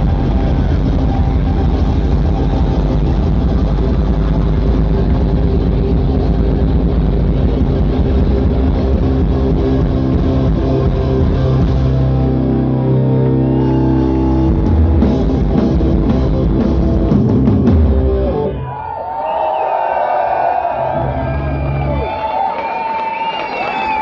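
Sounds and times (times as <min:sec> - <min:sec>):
drum kit: 0:00.0 - 0:12.5, 0:13.6 - 0:18.5
distorted electric guitar: 0:00.0 - 0:18.7
electric bass: 0:00.0 - 0:18.8, 0:20.6 - 0:22.3
crowd cheering and whooping: 0:12.8 - 0:15.4, 0:18.3 - 0:24.0.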